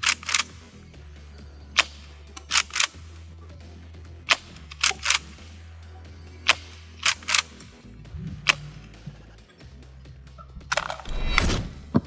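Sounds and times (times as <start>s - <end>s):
shotgun pump clacking: 0.0s - 0.6s, 1.8s - 3.0s, 4.3s - 5.3s, 6.4s - 7.7s, 10.6s - 11.1s
low background music: 0.0s - 12.0s.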